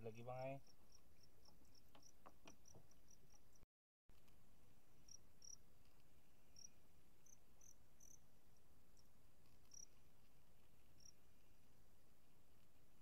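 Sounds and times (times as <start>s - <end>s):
insects chirping: 0.0s - 3.6s, 5.0s - 5.7s, 6.4s - 10.1s, 10.7s - 11.3s.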